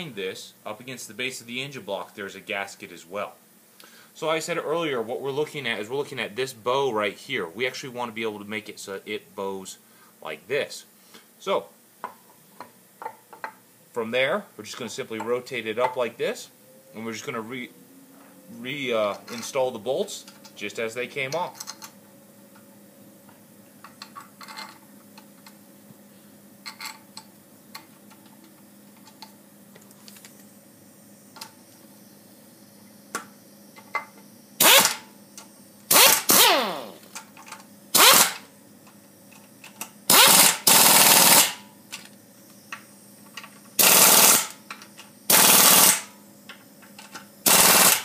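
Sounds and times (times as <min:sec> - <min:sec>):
air wrench bursts: 0:34.6 - 0:35.1, 0:35.9 - 0:37.2, 0:37.9 - 0:38.5, 0:40.1 - 0:41.6, 0:43.8 - 0:44.6, 0:45.3 - 0:46.2, 0:47.4 - 0:48.0.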